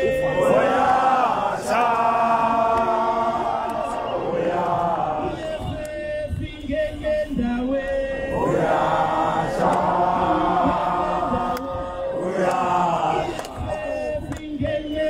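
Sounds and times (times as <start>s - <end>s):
lead voice through a speaker: 0.0s - 2.5s
crowd singing a chant: 0.0s - 15.0s.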